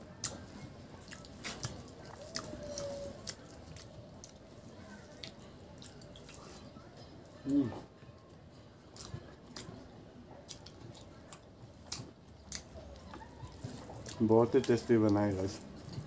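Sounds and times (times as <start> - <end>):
fingers squishing rice: 0.1 - 6.6
wet mouth clicks and chewing: 0.2 - 6.8, 8.9 - 15.2.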